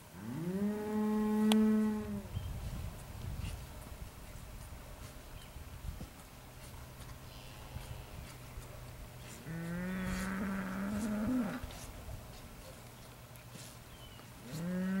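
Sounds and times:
calf mooing: 9.4s - 11.7s, 14.5s - 15.0s.

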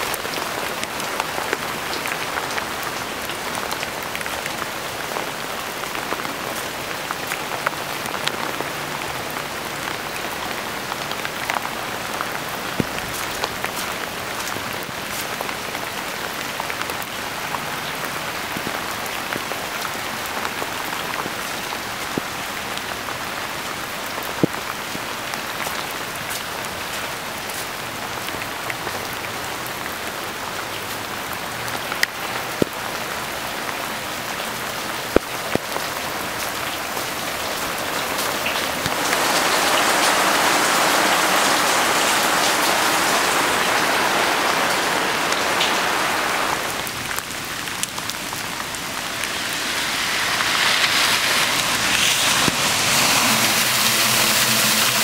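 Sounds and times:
heavy rain on wet ground: 0.0s - 55.0s.

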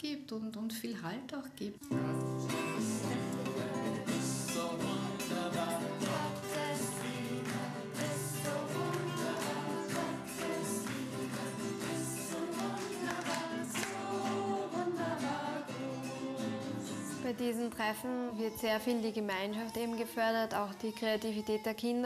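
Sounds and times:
strummed classical guitar: 1.8s - 20.2s
group singing: 1.9s - 17.2s
hands clapping a steady beat: 2.5s - 15.8s.

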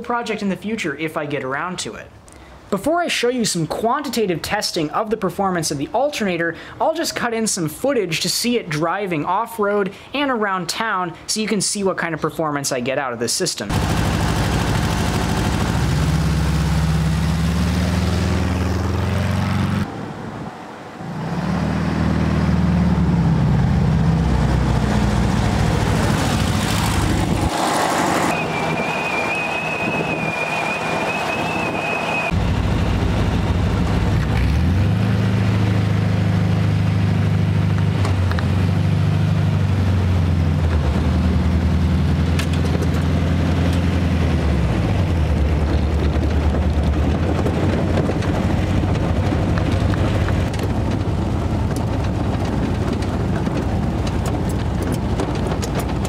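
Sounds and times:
buggy engine accelerating: 13.7s - 20.4s, 21.0s - 56.0s
thin high whine: 28.1s - 32.4s.

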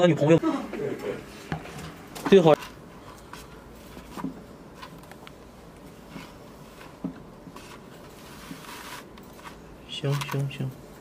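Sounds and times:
soft rustle: 2.6s - 10.7s.

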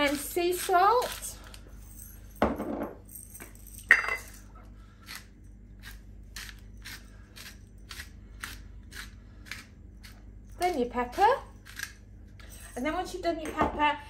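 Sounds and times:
salt grinder crunching: 5.0s - 12.0s.

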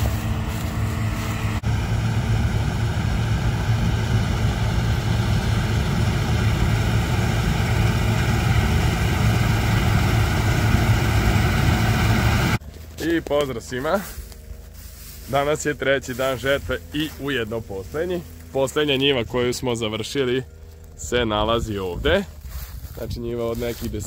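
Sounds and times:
machinery drone: 0.0s - 24.0s.

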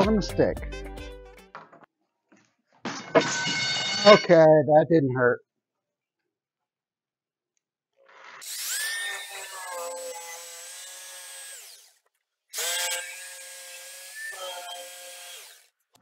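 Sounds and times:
jigsaw cutting plywood: 8.0s - 16.0s.

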